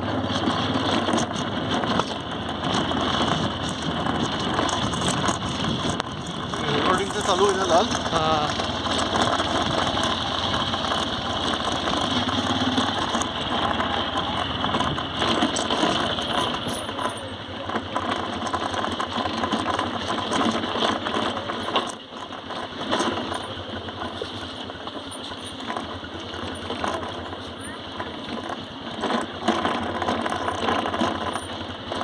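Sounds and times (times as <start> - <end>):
motorcycle engine running: 0.0 - 32.0
motorcycle parts rattling: 0.0 - 32.0.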